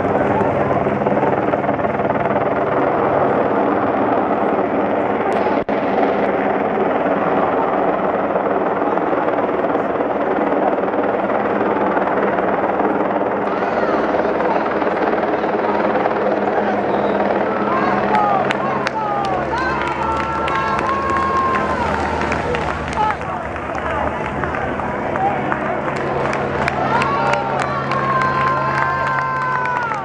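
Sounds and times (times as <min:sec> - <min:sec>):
loud engine drone: 0:13.4 - 0:30.0
spectator voices: 0:13.5 - 0:30.0.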